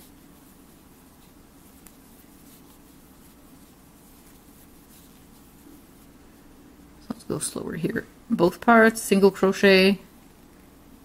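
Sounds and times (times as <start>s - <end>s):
crochet hook scratching yarn: 0.0s - 6.2s
low steady hum: 0.0s - 11.0s
soft irregular ticks: 0.2s - 6.1s.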